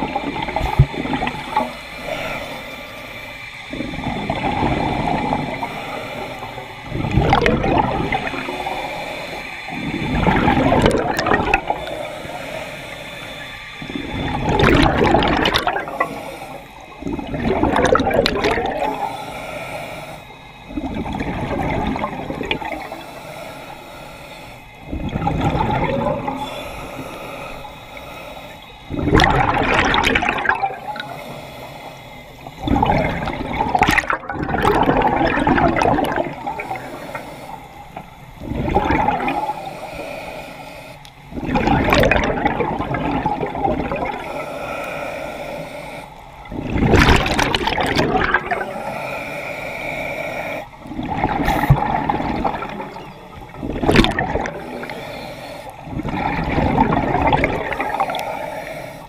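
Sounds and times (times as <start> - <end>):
regulator hissing: 0.0 - 17.5
regulator exhale bubbling: 0.0 - 59.0.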